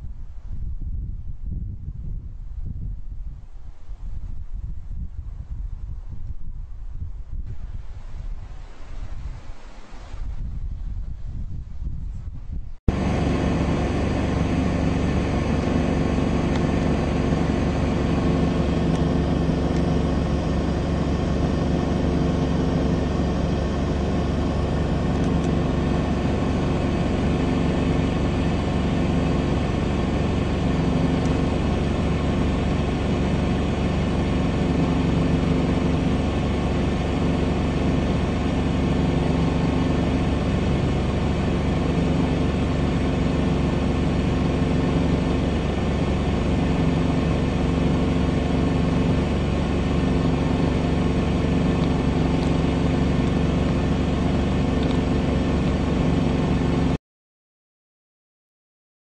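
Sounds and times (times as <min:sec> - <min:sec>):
car engine hum inside cabin: 0:12.8 - 0:57.0.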